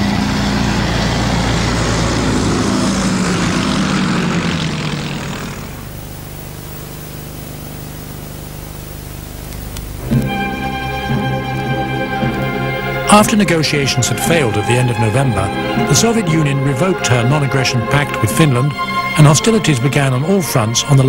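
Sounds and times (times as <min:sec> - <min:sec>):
propeller planes passing: 0:00.0 - 0:21.0
music: 0:10.0 - 0:21.0.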